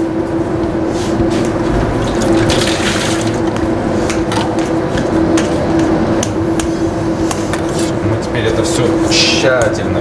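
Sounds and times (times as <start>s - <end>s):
steady background hum: 0.0s - 10.0s.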